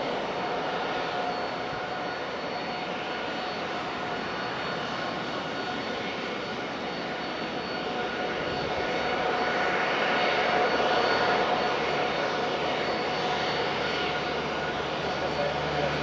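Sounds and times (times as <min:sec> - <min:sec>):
jet engines taxiing: 0:00.0 - 0:16.0.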